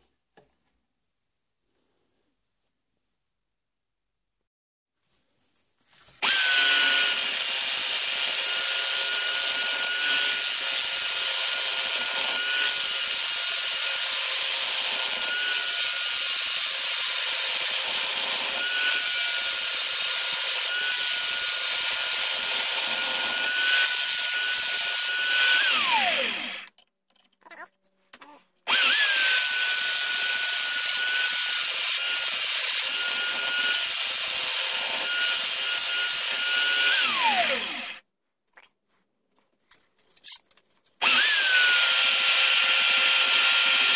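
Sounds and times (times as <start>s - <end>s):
electric drill motor whine: 6.2s - 26.7s, 28.7s - 38.0s, 41.0s - 43.9s.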